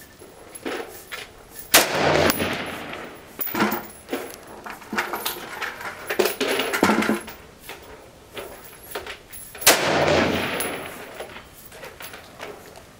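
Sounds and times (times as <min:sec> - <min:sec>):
gunshot echo: 0:01.7 - 0:03.2, 0:09.7 - 0:11.4
rifle gunshots: 0:01.7 - 0:03.3, 0:09.6 - 0:11.4.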